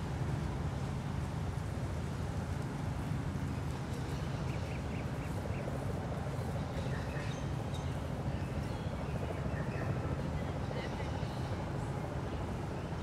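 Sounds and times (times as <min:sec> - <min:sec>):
distant city traffic hum: 0:00.0 - 0:13.0.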